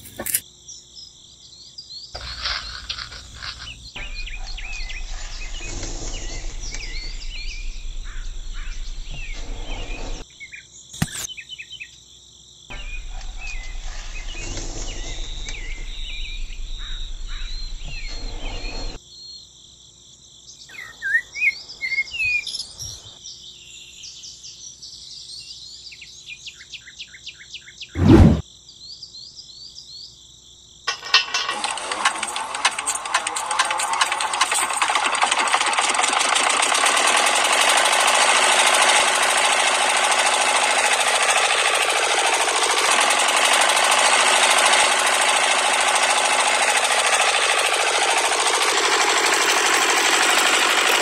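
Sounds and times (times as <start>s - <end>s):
birds chirping: 0.0s - 11.5s, 12.7s - 19.0s
insects trilling: 0.0s - 24.0s.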